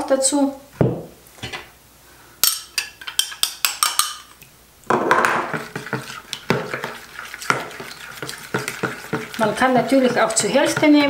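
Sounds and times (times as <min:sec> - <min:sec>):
spoon stirring batter in plastic bowl: 0:05.0 - 0:11.0
spoon scraping glass bowl: 0:05.4 - 0:11.0.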